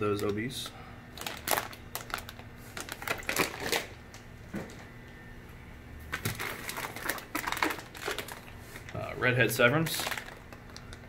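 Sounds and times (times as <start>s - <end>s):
plastic bags crinkling: 1.1s - 4.0s, 6.1s - 11.0s.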